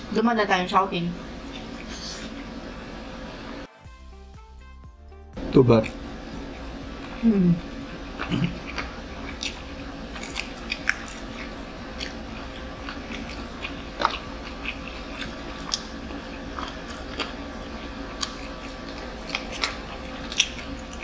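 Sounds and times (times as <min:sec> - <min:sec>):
steady low hum: 0:00.0 - 0:03.7, 0:04.6 - 0:21.0
chewing and crunching: 0:01.4 - 0:02.4, 0:05.7 - 0:21.0.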